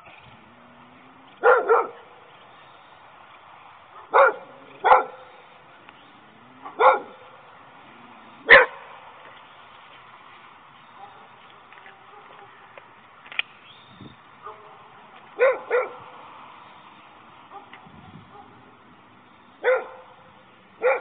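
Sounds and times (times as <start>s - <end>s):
small dog barking: 1.4s - 2.0s, 4.0s - 5.2s, 6.6s - 7.3s, 8.5s - 8.8s, 11.0s - 12.6s, 15.4s - 16.0s, 17.5s - 18.6s, 19.6s - 20.1s, 20.8s - 21.0s.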